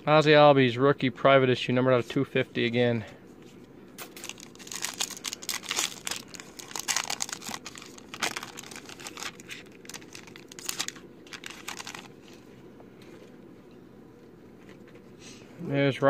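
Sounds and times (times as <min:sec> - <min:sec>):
foil wrapper crinkling: 0:04.0 - 0:12.4.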